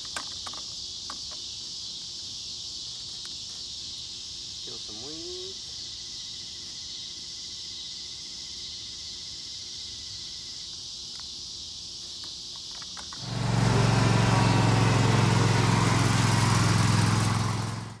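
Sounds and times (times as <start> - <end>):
high insect hiss: 0.0 - 13.9
riding lawn mower engine: 13.0 - 18.0.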